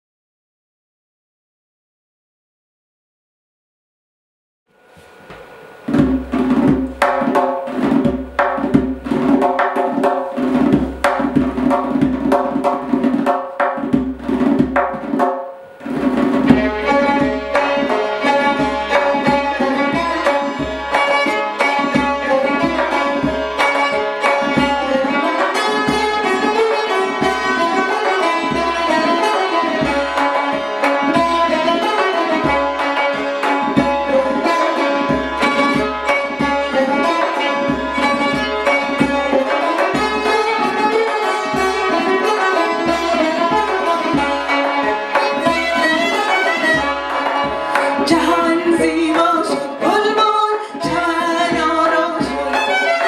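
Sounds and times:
lute: 0:04.8 - 0:53.0
goblet drum: 0:05.0 - 0:53.0
hammered dulcimer: 0:05.9 - 0:53.0
violin: 0:15.7 - 0:53.0.

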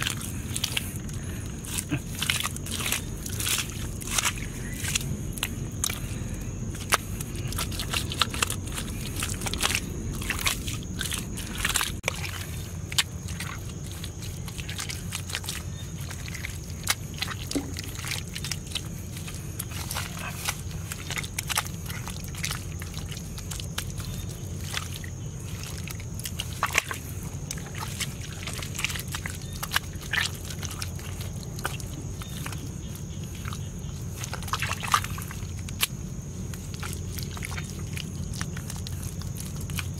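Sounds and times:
hands slapping wet mud: 0:00.0 - 0:39.9.

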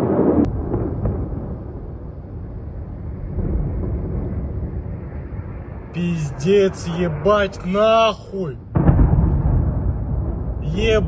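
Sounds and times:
rumble of distant explosions: 0:00.0 - 0:11.0.

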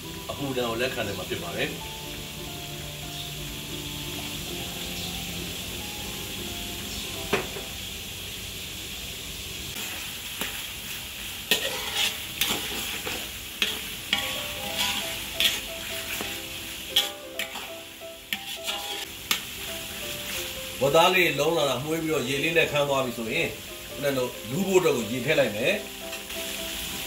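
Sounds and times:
meat sizzling in a wok: 0:00.0 - 0:27.0
metal spatula scraping a wok: 0:09.8 - 0:20.6.

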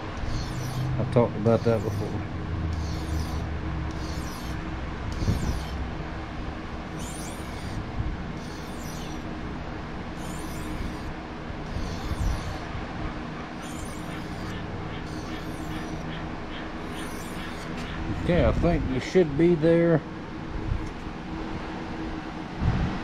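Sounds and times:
knife scraping on whetstone: 0:00.0 - 0:05.8, 0:06.9 - 0:09.4, 0:10.1 - 0:12.7, 0:13.5 - 0:18.0
low hum: 0:00.0 - 0:19.4.

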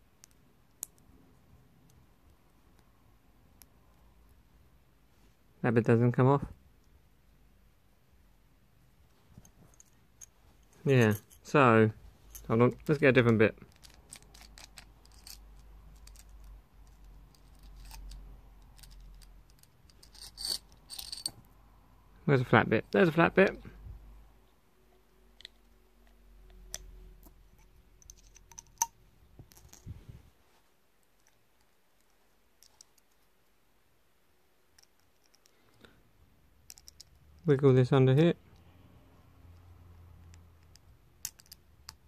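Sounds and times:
small metallic clicks and taps: 0:12.3 - 0:21.4, 0:36.6 - 0:37.4, 0:39.5 - 0:42.0.

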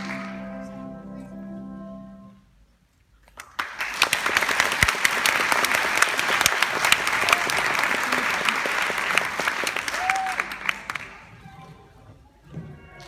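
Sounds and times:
audience applauding: 0:00.0 - 0:00.6, 0:03.3 - 0:11.7
music: 0:00.0 - 0:02.7.

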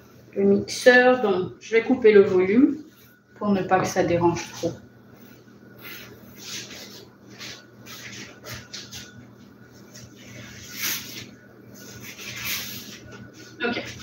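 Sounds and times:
sponge wiping a countertop: 0:04.3 - 0:14.0.

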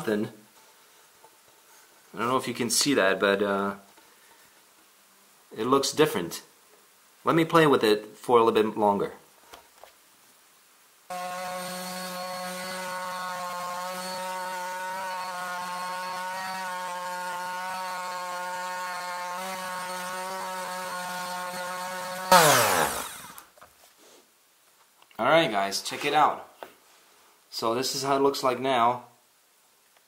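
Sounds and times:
electric sander running: 0:11.1 - 0:23.5.

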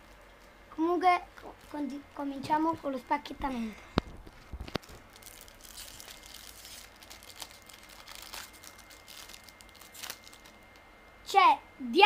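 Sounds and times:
cards rustling: 0:04.0 - 0:10.8
foil wrapper crinkling: 0:04.0 - 0:10.8.

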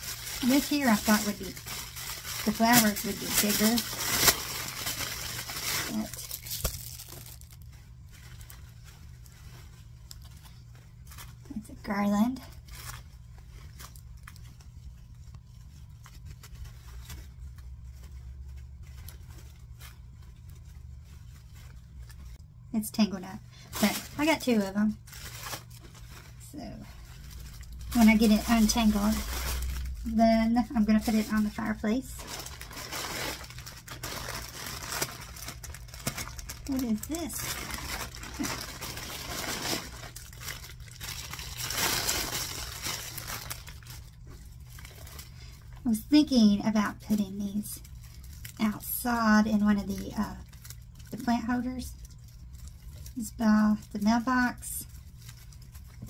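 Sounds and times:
artificial leaves rustling: 0:00.0 - 0:56.0
faint low hum: 0:00.0 - 0:56.0
plastic bag crinkling: 0:00.0 - 0:56.0.

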